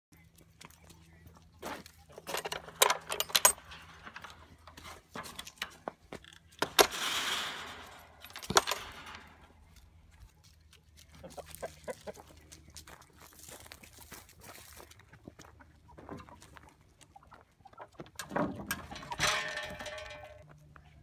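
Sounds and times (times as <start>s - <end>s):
gate latch rattling: 2.2s - 5.8s, 6.6s - 9.6s.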